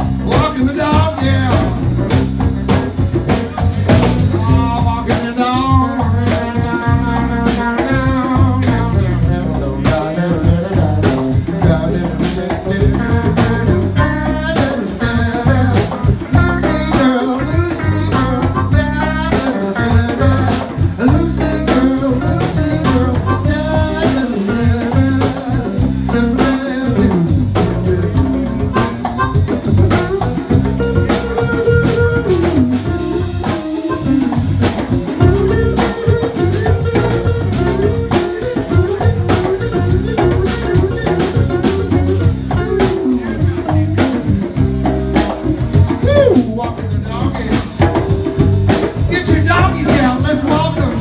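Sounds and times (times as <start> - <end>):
djembe: 0.0 - 51.0
drum kit: 0.0 - 51.0
electric guitar: 0.0 - 51.0
harmonica: 3.1 - 51.0.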